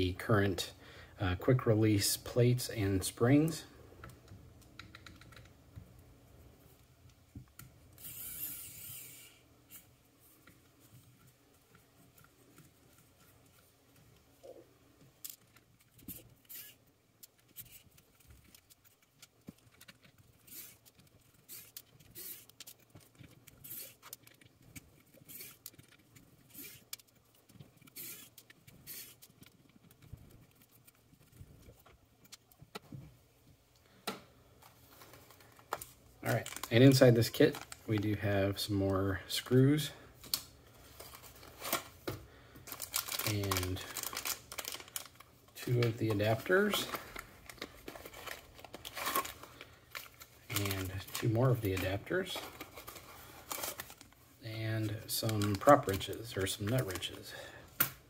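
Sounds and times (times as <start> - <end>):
small parts set on wooden table: 7.1 - 14.3, 15.0 - 32.9.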